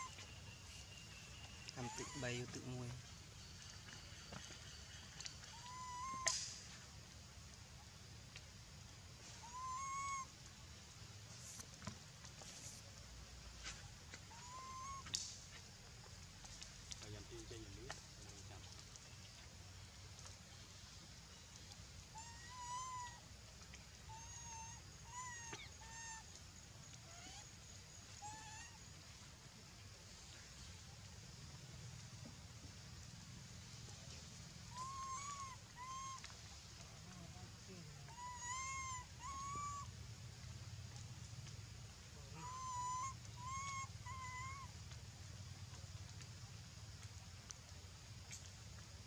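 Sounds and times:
monkeys coo calls: 1.8s - 2.8s, 5.5s - 6.4s, 9.4s - 10.3s, 14.3s - 15.0s, 22.2s - 23.2s, 24.1s - 26.2s, 28.2s - 28.8s, 34.7s - 36.3s, 38.1s - 39.9s, 42.3s - 44.7s.

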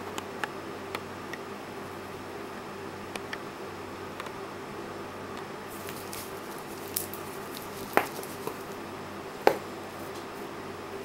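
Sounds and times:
wristwatch rustling and ticking: 5.7s - 8.8s.

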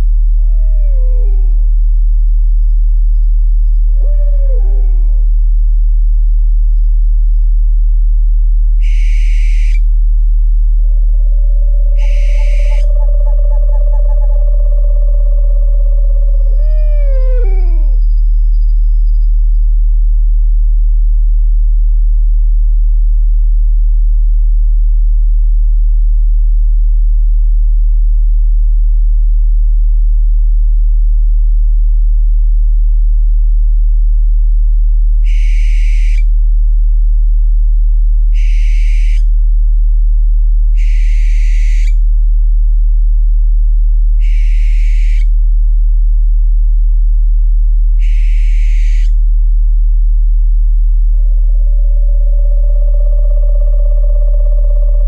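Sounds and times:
loud low sine tone: 0.0s - 55.0s
owl screeching: 0.4s - 1.7s, 3.9s - 5.2s, 8.8s - 9.8s, 11.1s - 18.2s, 35.2s - 36.3s, 38.3s - 39.3s, 40.8s - 42.0s, 44.2s - 45.3s, 48.0s - 49.2s, 51.5s - 55.0s.

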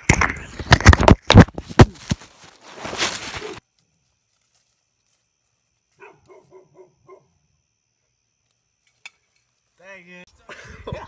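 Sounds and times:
dog barking: 6.0s - 7.4s.

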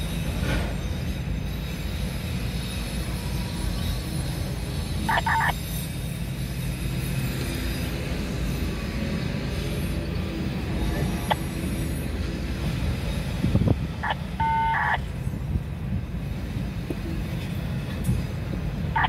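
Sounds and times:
freight train wheels rumbling: 0.0s - 19.0s.

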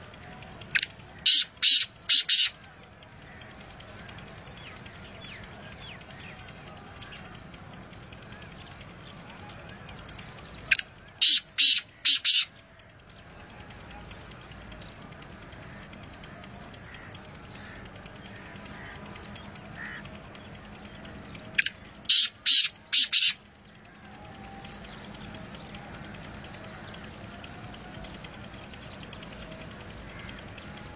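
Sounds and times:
bird call with rasping notes: 0.2s - 30.9s.

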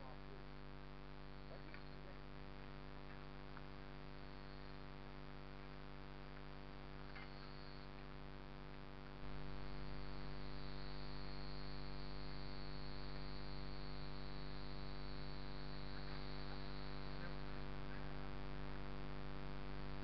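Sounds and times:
buzzing hum: 0.0s - 20.0s.

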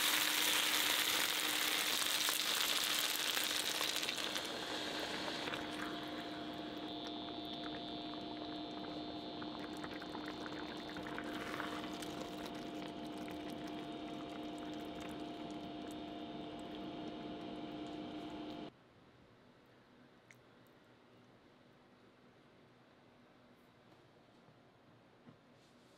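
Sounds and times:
food sizzling in frying pan: 0.0s - 15.8s
small crackles: 0.0s - 18.7s.

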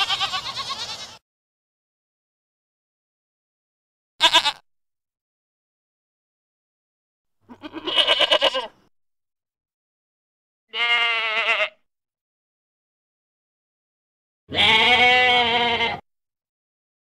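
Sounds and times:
goat bleating: 0.0s - 1.2s, 4.2s - 4.6s, 7.4s - 8.8s, 10.7s - 11.8s, 14.5s - 16.0s.

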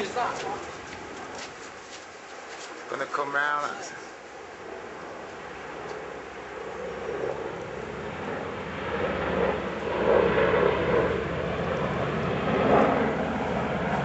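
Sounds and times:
helicopter flying low overhead: 0.0s - 14.0s.

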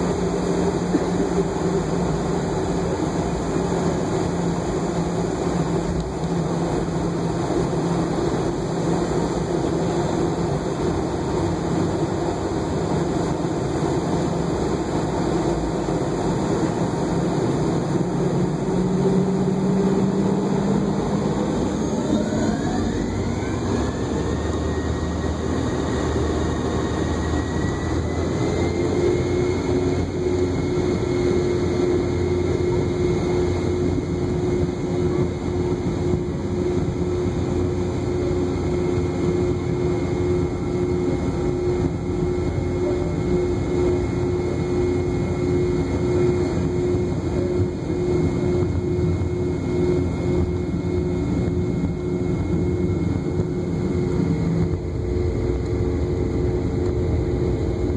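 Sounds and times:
jet engine rumble and whine: 0.0s - 57.9s.

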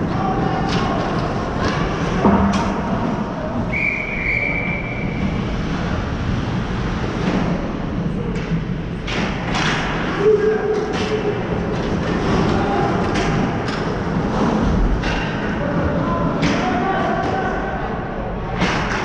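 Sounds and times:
referee's whistle: 3.7s - 5.2s.

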